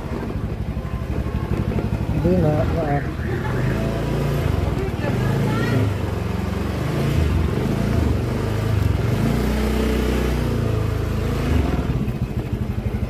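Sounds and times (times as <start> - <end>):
small motorcycle engine running: 0.0 - 13.0.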